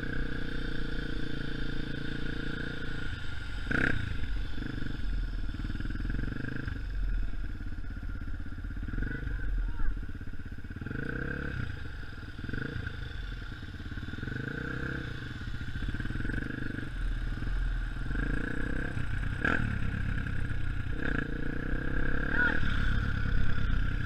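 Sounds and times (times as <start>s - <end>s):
dirt bike engine revving: 0.0s - 6.9s, 10.6s - 13.4s, 14.0s - 24.0s.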